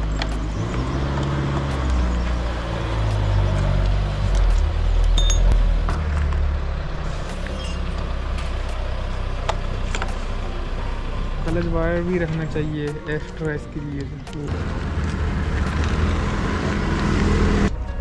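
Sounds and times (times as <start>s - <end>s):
engine running at low revs: 0.0s - 12.5s, 14.5s - 17.8s
short metallic clink: 5.2s - 5.5s.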